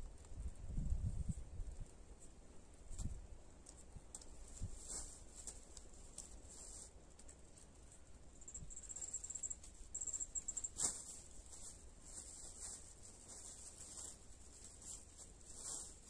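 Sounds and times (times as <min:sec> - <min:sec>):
insect trilling: 0:08.5 - 0:10.8.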